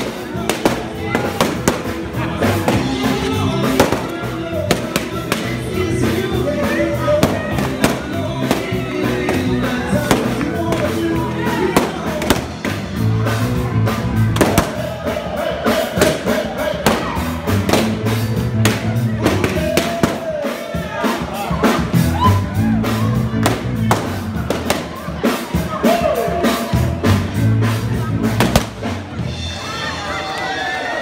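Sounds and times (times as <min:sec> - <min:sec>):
balloons popping: 0:00.0 - 0:02.0, 0:02.6 - 0:05.7, 0:07.2 - 0:12.8, 0:14.4 - 0:14.9, 0:16.0 - 0:20.3, 0:23.4 - 0:24.9, 0:28.4 - 0:28.8
loud dance music: 0:00.0 - 0:30.6.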